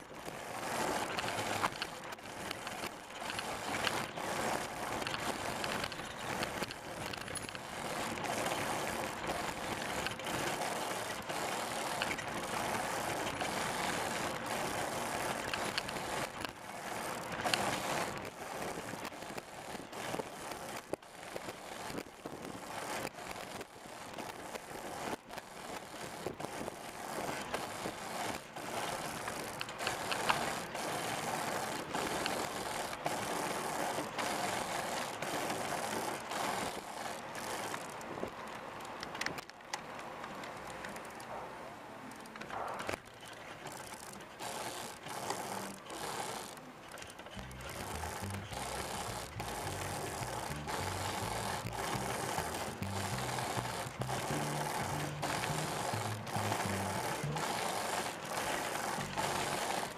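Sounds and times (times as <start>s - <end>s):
trike clicks and rattles: 0.0s - 41.4s, 42.0s - 59.9s
tyres rolling on asphalt: 0.0s - 59.9s.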